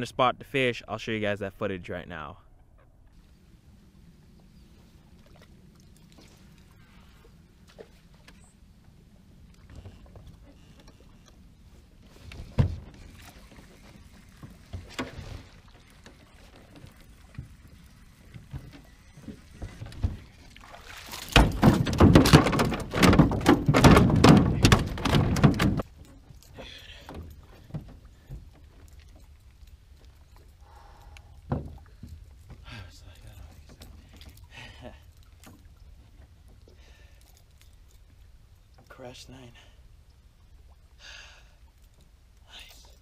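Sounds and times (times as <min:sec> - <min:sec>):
fish splashing and thrashing: 0:09.2 - 0:32.7
knocks on a boat: 0:21.3 - 0:25.8.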